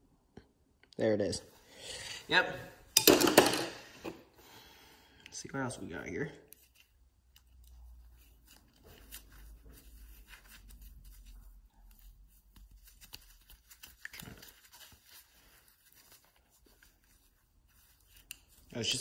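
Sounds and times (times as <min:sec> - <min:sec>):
gloved hands rustling: 0:05.1 - 0:19.0.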